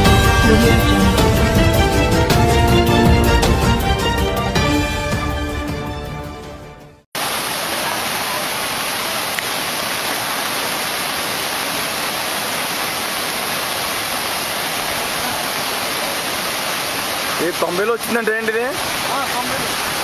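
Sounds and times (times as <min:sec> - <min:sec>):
floodwater rushing: 0:00.0 - 0:05.3, 0:07.2 - 0:20.0.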